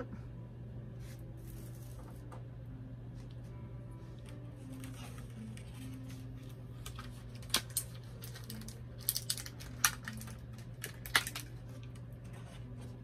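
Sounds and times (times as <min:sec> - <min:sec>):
steady low hum: 0:00.0 - 0:13.0
plastic clicks and crinkles: 0:06.4 - 0:12.1.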